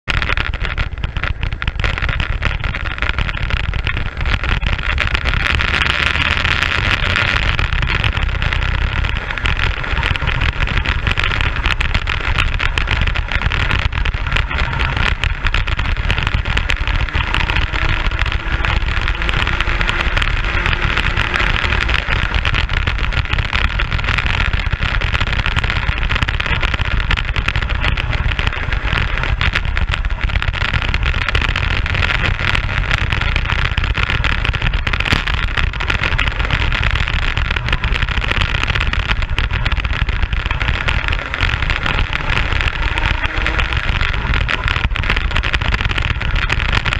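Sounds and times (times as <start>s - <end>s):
low rumble: 0.0s - 46.9s
racing kart engine: 0.2s - 46.9s.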